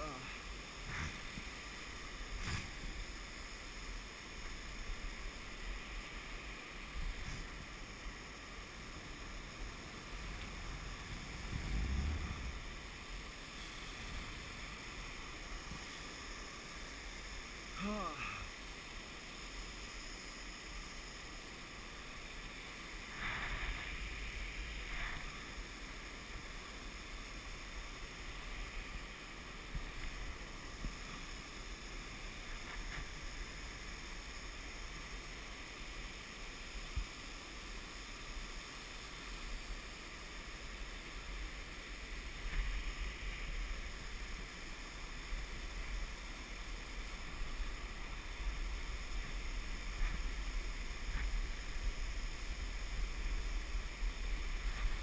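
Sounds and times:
whitewater river rushing: 7.5 - 20.6
wind buffeting microphone: 10.0 - 12.9.

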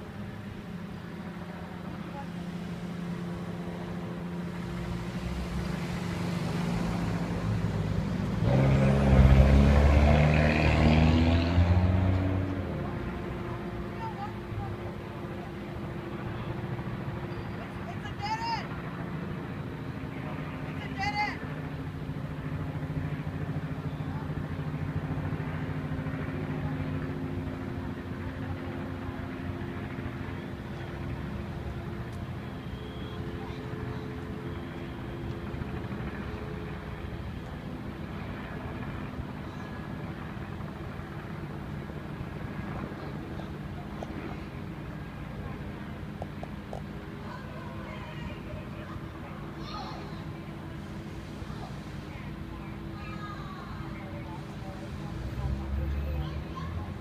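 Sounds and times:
low engine drone: 0.0 - 57.0
small car driving past: 4.5 - 13.0.

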